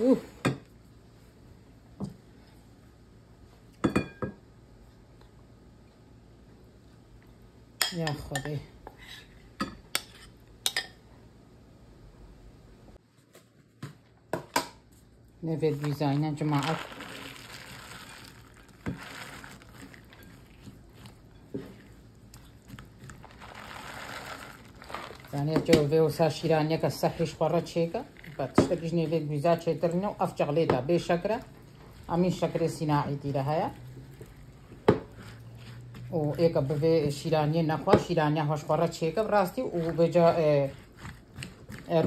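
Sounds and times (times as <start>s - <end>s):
spatula scraping glass bowl: 29.8s - 37.3s.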